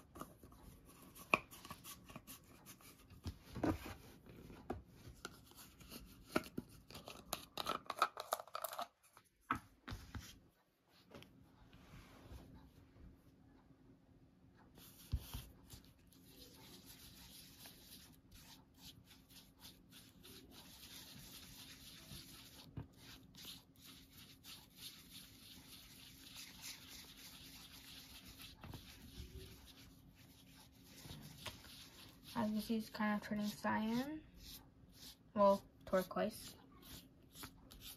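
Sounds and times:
paintbrush rubbing on paper: 0:14.8 - 0:37.9.

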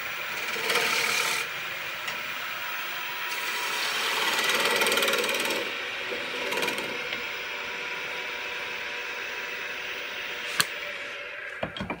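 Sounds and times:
wood lathe running: 0:00.0 - 0:11.6
gouge cutting wood: 0:00.3 - 0:01.5, 0:03.3 - 0:07.2
tools knocking on bench: 0:11.6 - 0:12.0.

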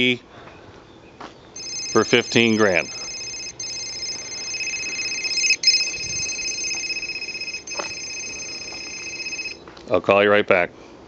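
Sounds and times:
phone ringtone ringing: 0:01.6 - 0:09.6.

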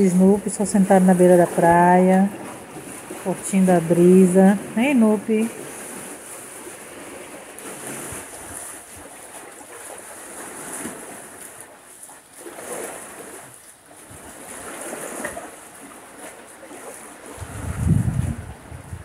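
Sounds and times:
small waves lapping against rocks: 0:00.0 - 0:19.0.

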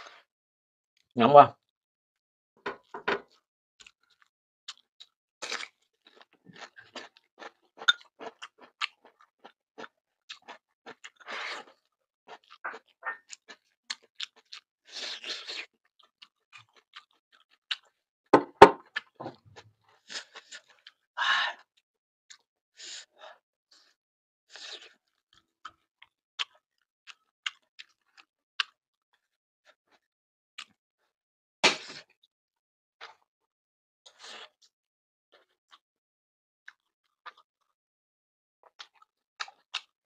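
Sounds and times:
person chewing with mouth smacks: 0:03.8 - 0:18.0, 0:38.6 - 0:39.9
loud knock: 0:18.4 - 0:18.8.

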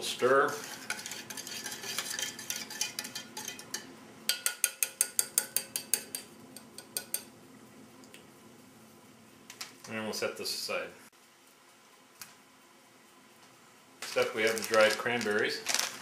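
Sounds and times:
spoon scraping metal cup: 0:00.5 - 0:03.8.

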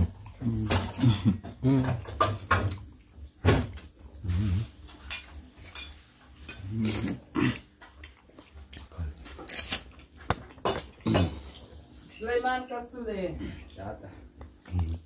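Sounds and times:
spoon clinking on crockery: 0:05.0 - 0:06.6.

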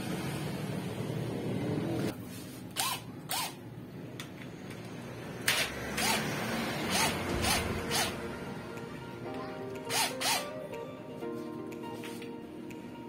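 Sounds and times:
impact drill whirring bursts: 0:02.8 - 0:03.6, 0:05.5 - 0:08.2, 0:09.9 - 0:10.4.

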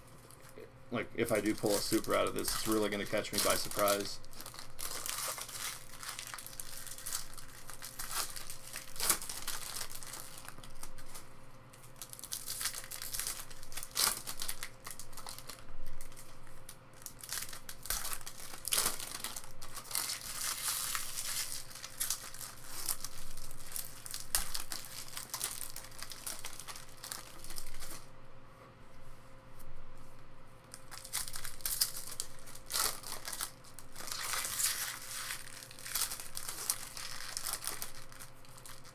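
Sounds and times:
foil wrappers crinkling and tearing: 0:01.2 - 0:28.1, 0:30.6 - 0:38.9.

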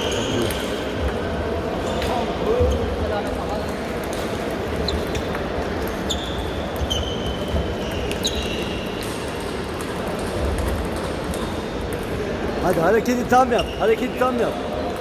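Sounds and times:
ping-pong balls clicking: 0:06.7 - 0:13.2.

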